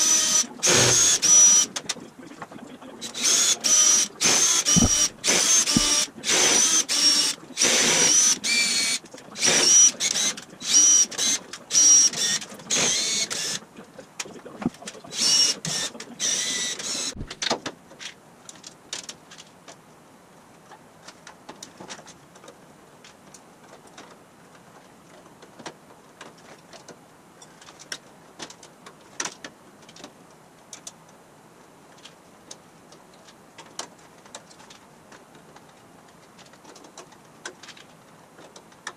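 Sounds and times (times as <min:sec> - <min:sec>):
cordless drill whirring: 0:00.0 - 0:01.7, 0:03.0 - 0:13.6, 0:15.1 - 0:17.3.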